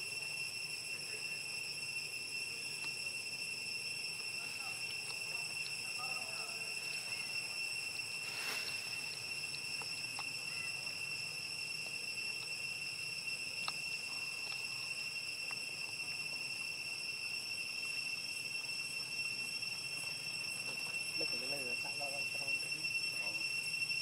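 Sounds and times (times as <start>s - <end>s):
insects droning: 0.0s - 24.0s
faint ticks: 8.5s - 10.7s, 13.6s - 14.8s.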